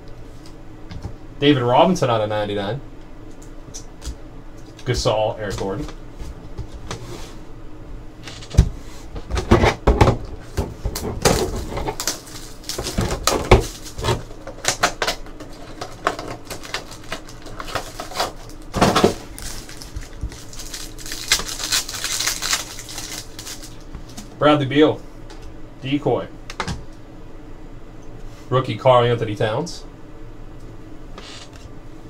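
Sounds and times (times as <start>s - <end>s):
crinkling of wrappers: 11.2s - 24.2s
rustle of packaging: 15.6s - 24.2s.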